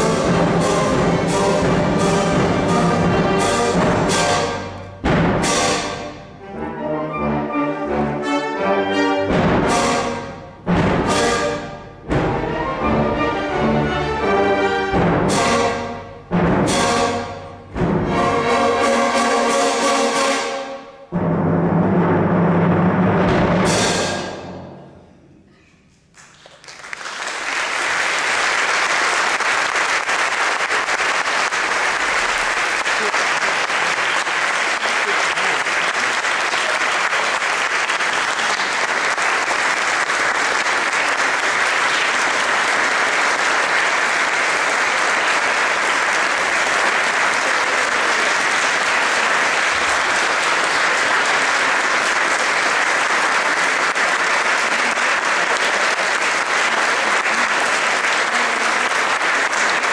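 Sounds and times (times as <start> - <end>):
audience applauding: 26.1 - 59.9.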